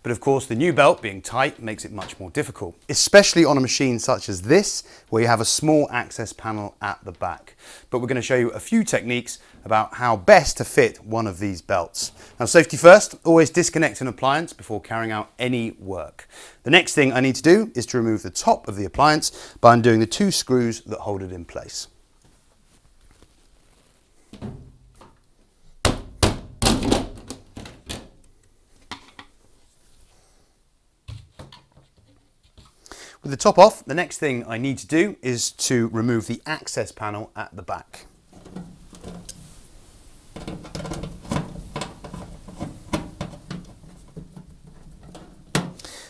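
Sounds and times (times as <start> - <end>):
washing machine panel thunking: 40.4 - 45.8.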